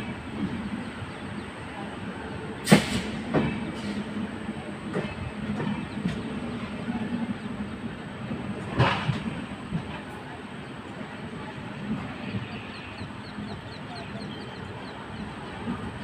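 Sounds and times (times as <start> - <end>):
train coaches rumbling on track: 0.0 - 16.0
wheels clanking over rail joints: 8.4 - 10.2.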